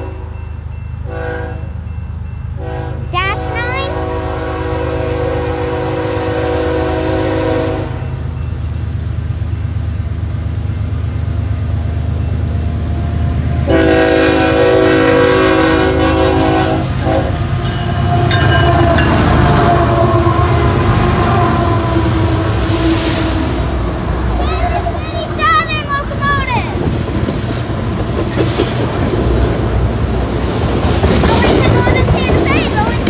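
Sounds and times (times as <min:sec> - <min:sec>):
train air horn: 0:00.0 - 0:00.4, 0:01.1 - 0:01.7, 0:02.6 - 0:08.1, 0:13.7 - 0:23.8.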